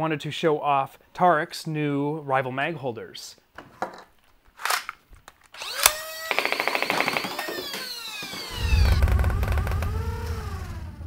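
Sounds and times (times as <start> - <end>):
falling synth sweeps: 8.4 - 11.0
rapid rattling pulses: 8.5 - 11.0
sharp electronic hit: 8.5 - 11.0
deep bass rumble: 8.6 - 11.0.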